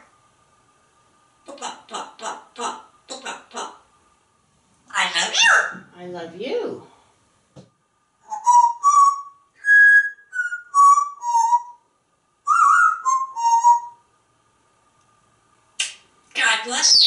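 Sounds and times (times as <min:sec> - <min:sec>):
parrot whistling a tune: 0:08.2 - 0:11.8, 0:12.4 - 0:14.0.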